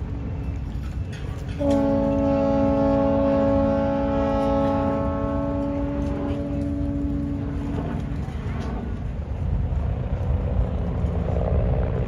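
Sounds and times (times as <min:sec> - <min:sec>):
boat horn blast: 0:01.6 - 0:08.8.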